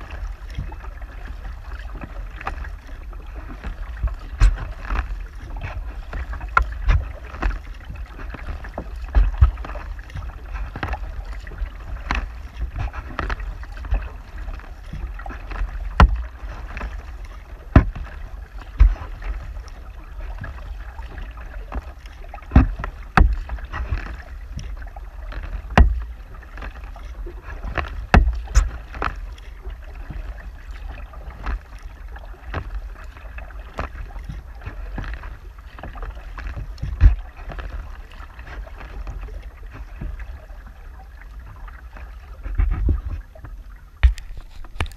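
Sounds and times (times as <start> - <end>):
paddle strokes splashing: 0.0 - 44.9
wind rumble on microphone: 0.0 - 44.9
knocks against plastic hull: 8.4 - 11.0, 15.9 - 16.8, 17.7 - 19.1, 22.5 - 24.7, 25.7 - 26.2, 27.6 - 29.1, 36.8 - 37.2, 44.0 - 44.9.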